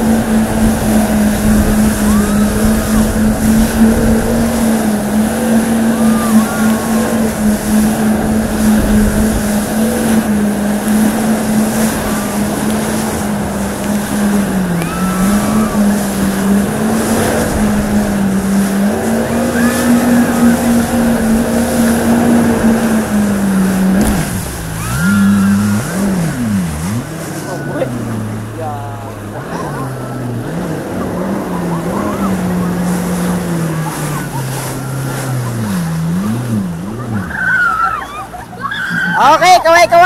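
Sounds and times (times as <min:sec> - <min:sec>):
jet ski engine running: 0:00.0 - 0:40.0
rushing wake and spray: 0:00.0 - 0:40.0.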